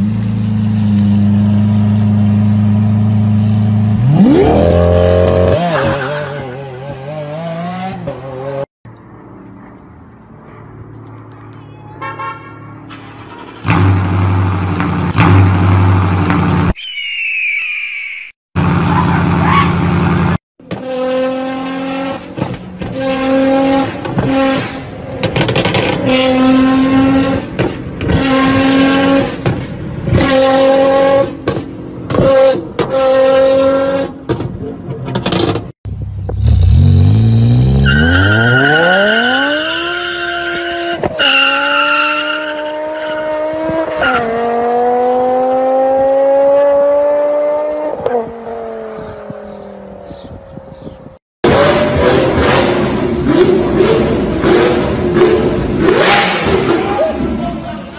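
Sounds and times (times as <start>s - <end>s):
car engine revving up: 36.3s - 48.9s.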